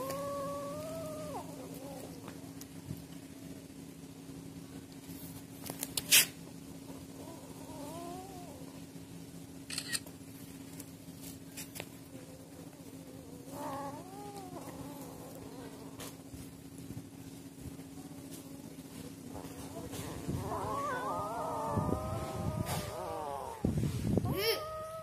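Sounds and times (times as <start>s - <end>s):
kittens crying: 0.0s - 2.3s, 7.1s - 8.8s, 12.4s - 16.3s, 19.4s - 25.0s
steady low hum: 0.0s - 25.0s.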